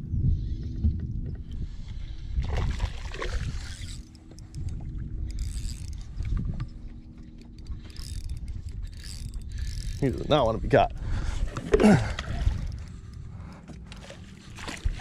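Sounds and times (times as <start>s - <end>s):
fishing reel winding with clicks: 3.5s - 10.6s.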